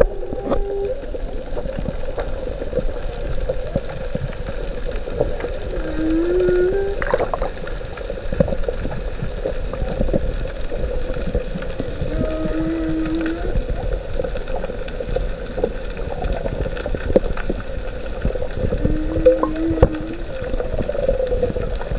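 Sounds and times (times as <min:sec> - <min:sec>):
whale song: 0:00.0 - 0:02.0, 0:05.2 - 0:07.7, 0:11.8 - 0:14.8, 0:18.2 - 0:21.9
small clicks and crackles: 0:00.0 - 0:21.9
underwater rush: 0:00.0 - 0:21.9.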